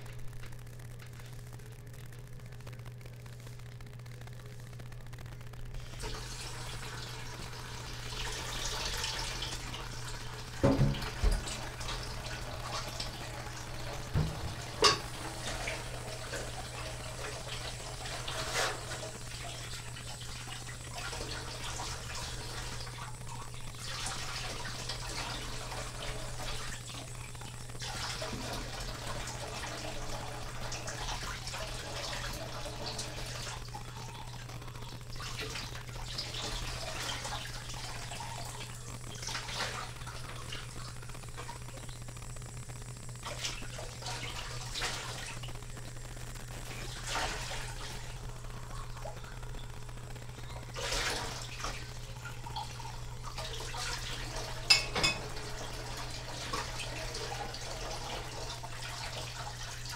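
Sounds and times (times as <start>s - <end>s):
steady low hum: 0.0s - 59.9s
tap running into sink: 10.6s - 12.0s, 14.1s - 15.2s, 54.7s - 55.3s.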